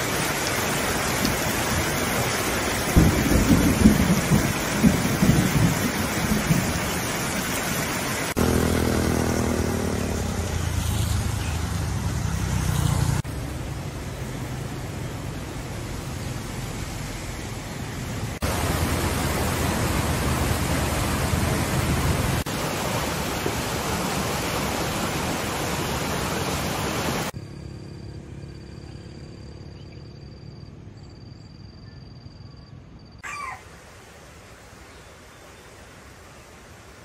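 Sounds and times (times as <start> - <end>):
floodwater rushing roar: 0.0 - 27.4, 33.3 - 37.0.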